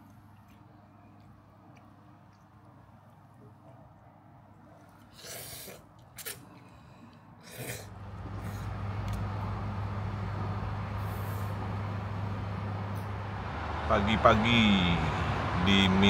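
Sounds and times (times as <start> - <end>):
street traffic noise: 0.0 - 16.0
low engine hum: 7.9 - 16.0.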